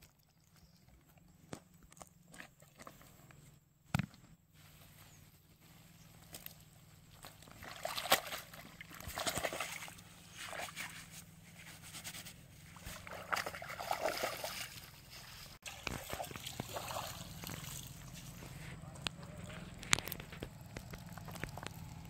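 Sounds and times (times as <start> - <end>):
water sloshing and splashing: 6.2 - 18.8.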